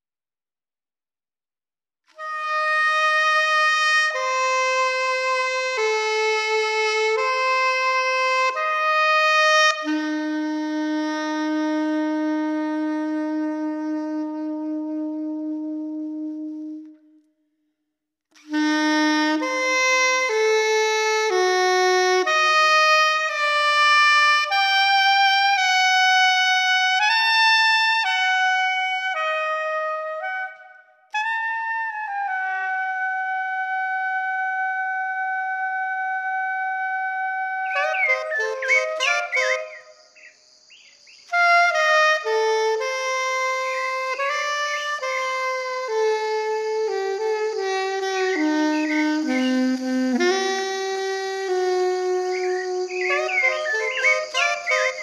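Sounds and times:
solo saxophone melody: 0:02.0 - 0:17.5, 0:18.3 - 0:40.3, 0:41.3 - 0:55.0.

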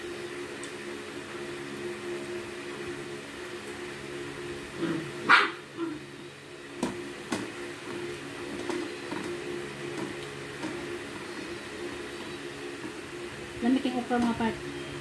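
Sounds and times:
steady low hum: 0:00.0 - 0:15.0
dog yelping: 0:04.8 - 0:06.0
dog barking: 0:05.2 - 0:06.0.

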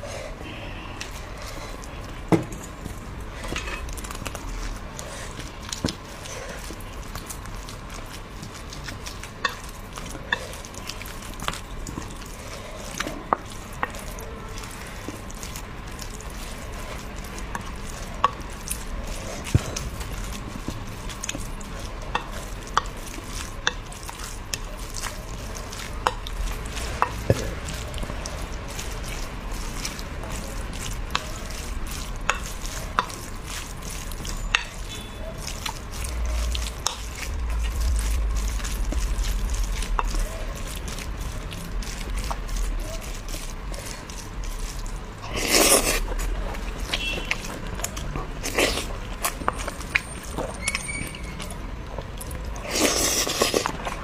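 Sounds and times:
spoon stirring rice: 0:00.0 - 0:54.0.

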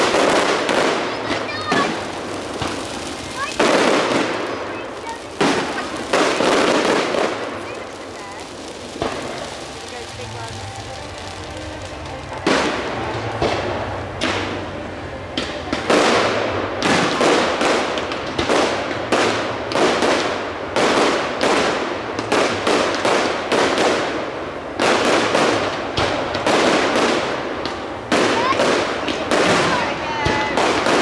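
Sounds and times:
firework shells bursting: 0:00.0 - 0:14.7.

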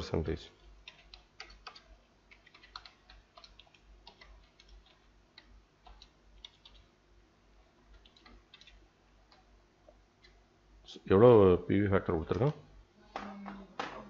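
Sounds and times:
computer keyboard tapping: 0:00.7 - 0:06.9, 0:07.9 - 0:09.5.

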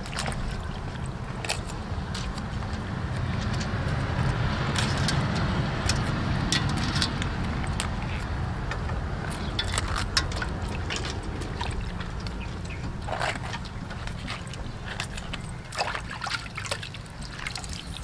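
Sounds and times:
greens swished in water by hand: 0:09.3 - 0:18.0.

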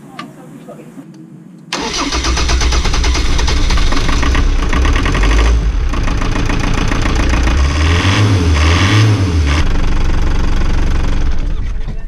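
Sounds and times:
diesel engine cranking and starting: 0:01.7 - 0:12.0.

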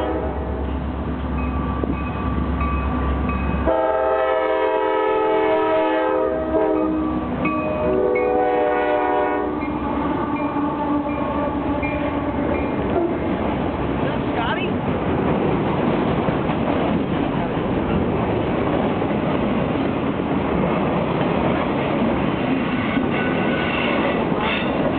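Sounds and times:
train air horn blasts: 0:00.0 - 0:00.7, 0:03.6 - 0:13.4, 0:22.8 - 0:24.7
diesel locomotive running: 0:00.0 - 0:24.9
freight cars rumbling on rails: 0:00.0 - 0:24.9.

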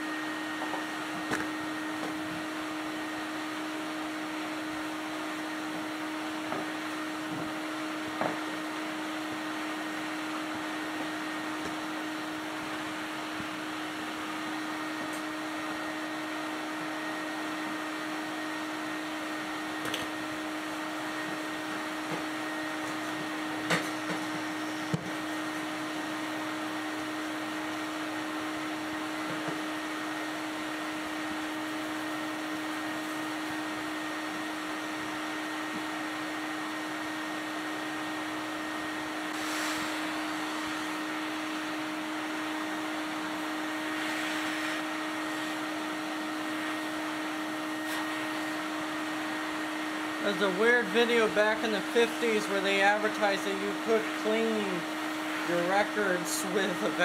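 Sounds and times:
vacuum cleaner motor whine: 0:00.0 - 0:57.0
hissing air surges: 0:39.3 - 0:40.7.

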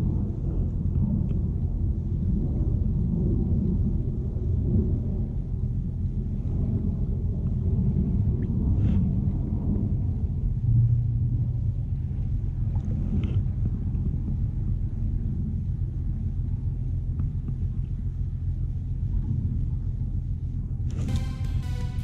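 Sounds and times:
wind rumble on microphone: 0:00.0 - 0:21.1
background music: 0:20.9 - 0:22.0.

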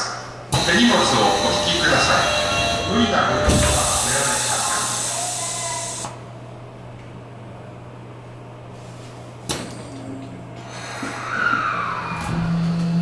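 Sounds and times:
low hum of train equipment: 0:00.0 - 0:13.0
sliding doors shutting: 0:00.6 - 0:05.0.

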